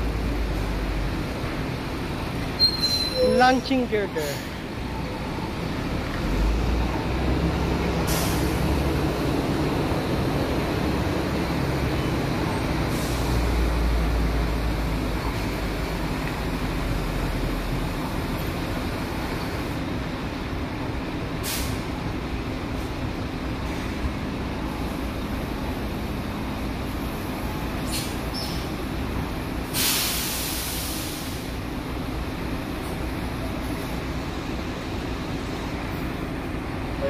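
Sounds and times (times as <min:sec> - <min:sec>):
engines and machinery rumbling: 0:00.0 - 0:37.0
air brake hiss: 0:08.0 - 0:08.6, 0:12.9 - 0:13.4, 0:21.4 - 0:21.8, 0:27.9 - 0:28.6, 0:29.7 - 0:31.6.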